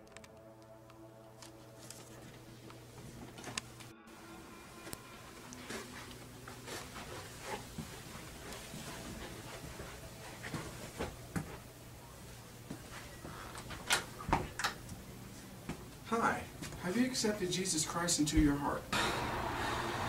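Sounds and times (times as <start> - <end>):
soft footsteps in a hallway: 4.8 - 16.8.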